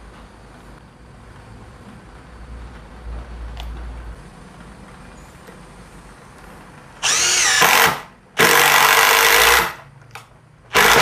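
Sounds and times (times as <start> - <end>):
impact driver driving screw: 7.0 - 9.8, 10.7 - 11.0.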